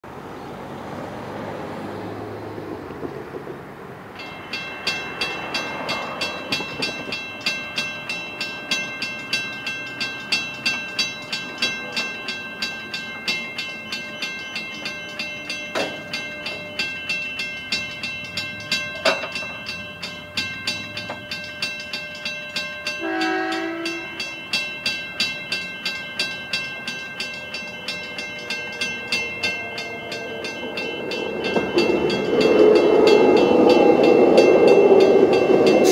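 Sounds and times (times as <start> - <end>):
level crossing warning bells: 4.1 - 35.9
train horn blast: 23.0 - 24.2.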